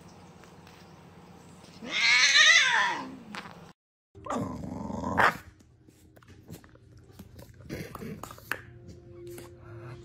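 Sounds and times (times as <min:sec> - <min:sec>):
dog growling: 0:04.2 - 0:05.4.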